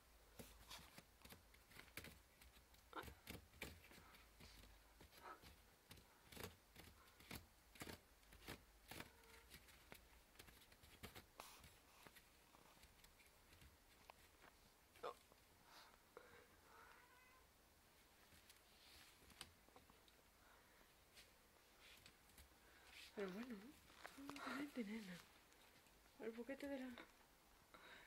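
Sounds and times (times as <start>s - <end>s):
kitten claws scratching wicker: 0.4s - 14.4s.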